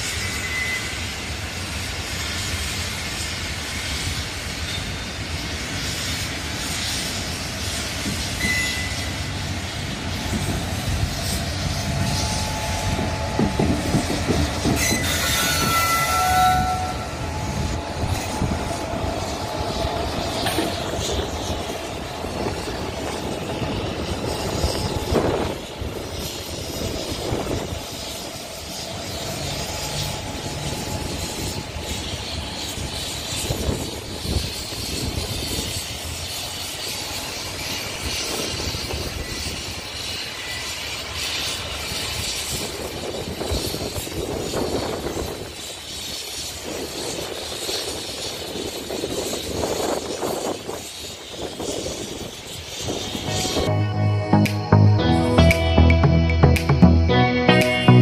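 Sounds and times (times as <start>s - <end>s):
locomotive rumbling past: 0.0s - 58.0s
wheels clicking over rail joints: 17.8s - 53.0s
brief high-pitched tones: 53.2s - 58.0s.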